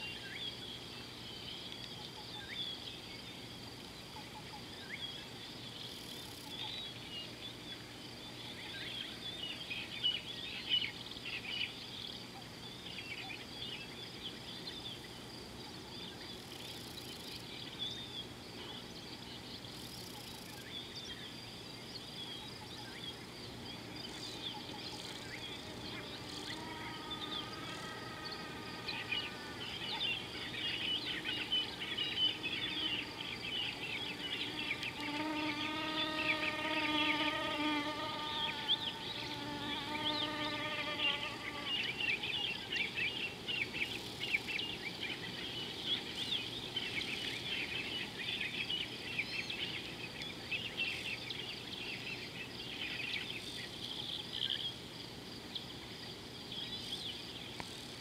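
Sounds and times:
birds chirping: 0:15.9 - 0:54.7
high-pitched insect drone: 0:24.0 - 0:43.0
low buzzy animal call: 0:25.1 - 0:33.2.

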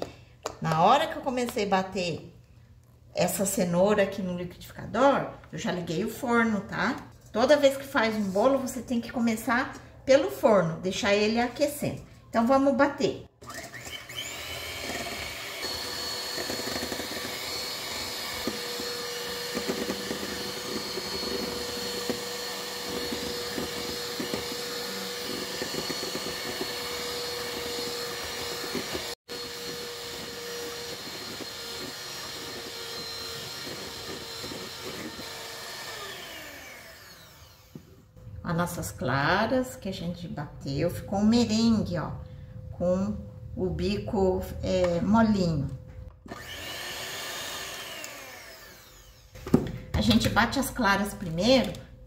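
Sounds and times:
electric hand mixer running: 0:13.4 - 0:38.0, 0:46.2 - 0:49.4.

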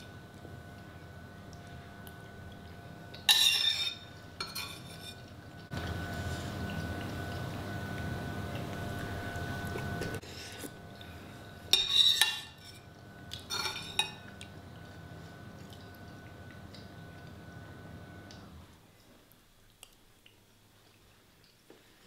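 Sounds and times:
background hum: 0:00.0 - 0:22.0
metal spoon scraping a bowl: 0:03.3 - 0:05.3, 0:11.7 - 0:12.8.

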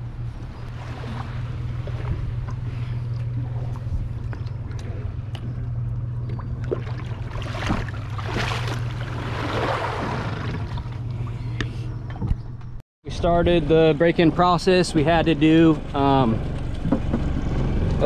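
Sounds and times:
water splashing against hull: 0:00.0 - 0:12.3
motorboat engine hum: 0:00.0 - 0:18.0.

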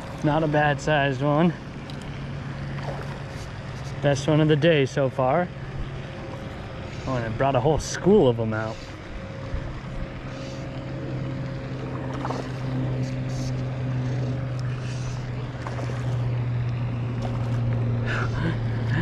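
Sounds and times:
low mechanical hum: 0:00.0 - 0:19.0
fly line rustling: 0:01.9 - 0:04.3, 0:06.2 - 0:18.4.

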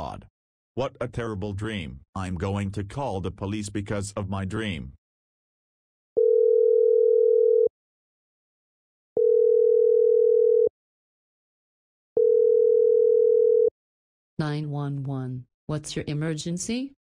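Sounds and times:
telephone ringback tone: 0:06.2 - 0:07.7, 0:09.2 - 0:10.7, 0:12.2 - 0:13.7.

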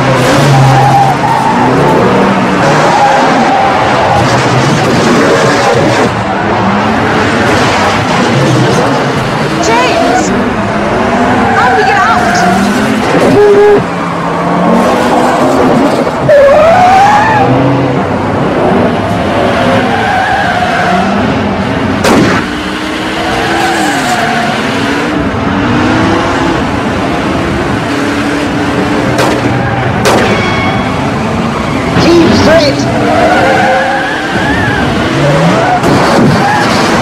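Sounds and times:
car engines revving: 0:00.0 - 0:37.0
tyres skidding and squealing: 0:00.0 - 0:37.0
gunshot: 0:22.0 - 0:22.5, 0:29.2 - 0:29.4, 0:30.0 - 0:30.4
sharp bangs: 0:22.0 - 0:22.6, 0:29.0 - 0:31.1.

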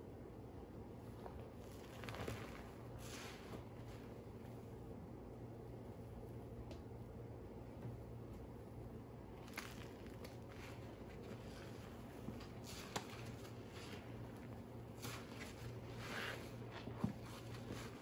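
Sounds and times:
low steady hum: 0:00.0 - 0:18.0
soft rustling: 0:01.0 - 0:04.9, 0:07.9 - 0:18.0.

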